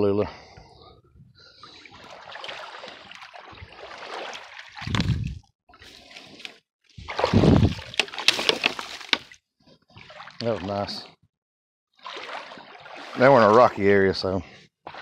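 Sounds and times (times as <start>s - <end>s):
water splashing from wading: 1.6s - 5.4s, 6.0s - 9.4s, 10.0s - 11.1s, 12.0s - 13.9s.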